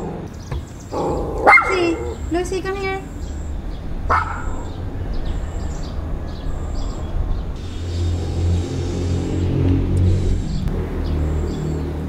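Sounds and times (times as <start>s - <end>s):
steady low rumble: 0.0s - 12.0s
small dog barking: 0.9s - 2.2s, 4.1s - 4.8s.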